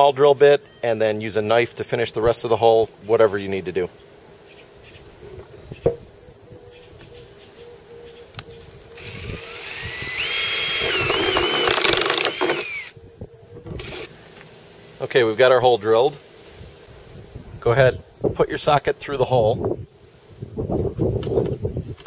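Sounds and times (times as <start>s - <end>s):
cordless drill boring through plastic: 9.0s - 13.0s, 13.8s - 14.1s.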